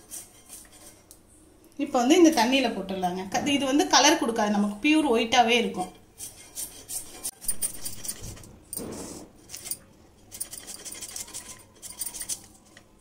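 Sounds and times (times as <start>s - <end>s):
metal bangles clinking: 7.3s - 8.9s, 9.5s - 12.7s.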